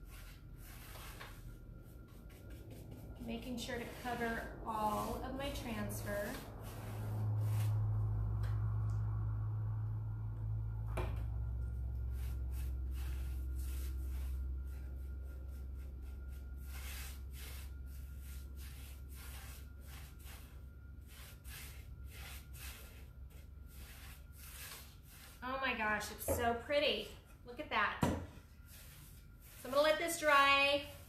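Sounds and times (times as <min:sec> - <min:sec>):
brush rubbing on wood: 0:00.0 - 0:07.9, 0:12.1 - 0:25.4, 0:28.6 - 0:31.0
low hum: 0:00.0 - 0:31.0.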